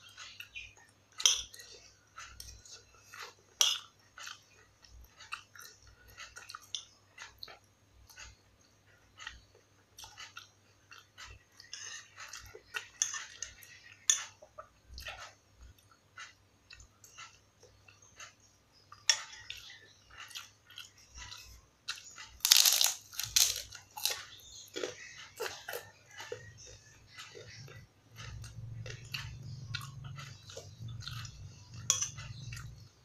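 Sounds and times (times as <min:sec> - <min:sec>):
person chewing food: 0:00.0 - 0:33.0
cracker crunching: 0:22.2 - 0:26.4.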